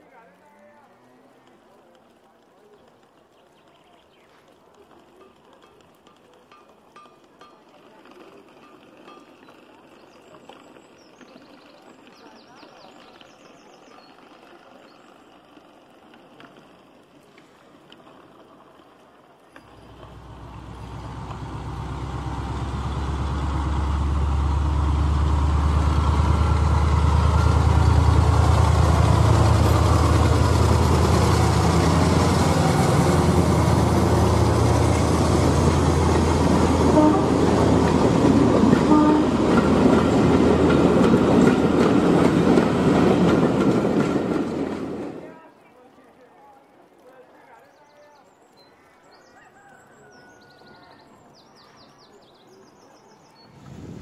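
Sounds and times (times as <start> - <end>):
wagons ticking over track: 0.0 - 45.5
deep diesel engine rumble: 19.6 - 45.0.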